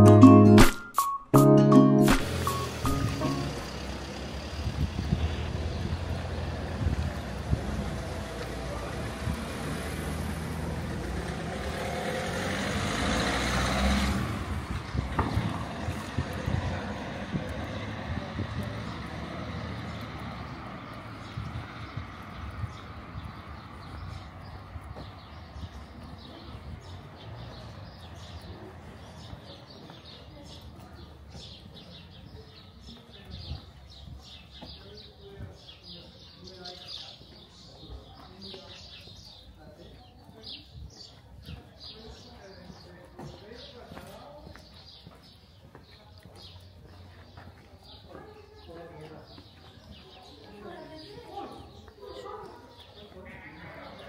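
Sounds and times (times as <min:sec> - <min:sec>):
vehicle engine hum with rushing: 0:02.2 - 0:22.2
small birds chirping: 0:02.3 - 0:54.0.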